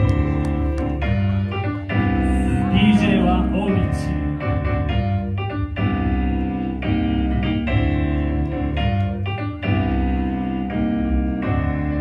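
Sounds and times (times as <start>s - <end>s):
house music with piano and bass: 0.0s - 12.0s.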